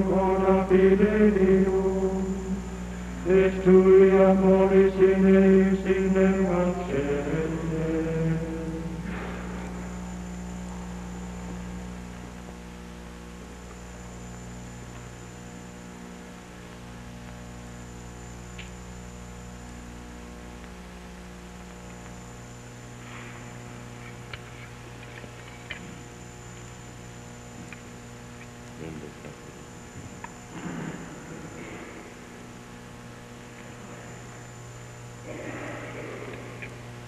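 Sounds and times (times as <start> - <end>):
chanting: 0.0 - 9.5
electrical mains hum: 0.0 - 37.0
thin high whine: 0.0 - 37.0.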